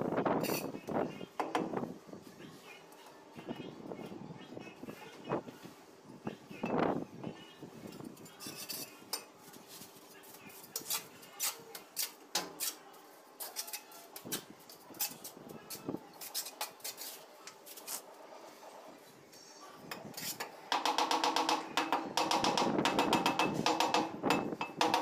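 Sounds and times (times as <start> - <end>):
trowel scraping and clinking: 0.4 - 0.8, 8.0 - 9.3, 10.6 - 12.8, 13.4 - 15.3, 16.2 - 18.0.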